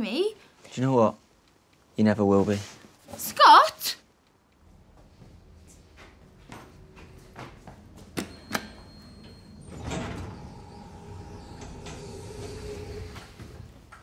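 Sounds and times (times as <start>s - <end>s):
steady hum: 4.2s - 14.0s
lift doors sliding: 4.8s - 14.0s.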